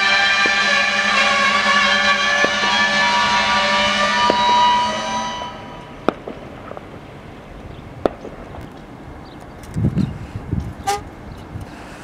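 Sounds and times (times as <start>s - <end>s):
metallic clanks of freight cars: 0.0s - 6.8s
wind on microphone: 7.6s - 11.9s.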